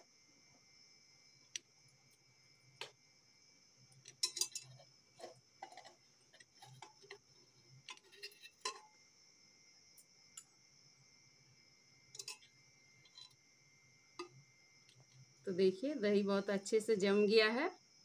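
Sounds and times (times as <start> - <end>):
ceramic plate clinking: 4.2 - 4.8, 12.2 - 12.4.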